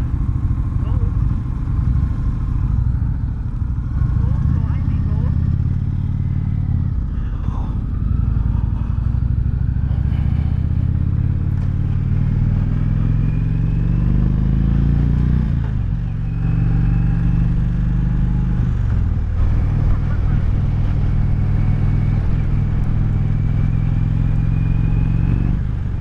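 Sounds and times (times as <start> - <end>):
motorcycle engine accelerating: 0.0 - 26.0.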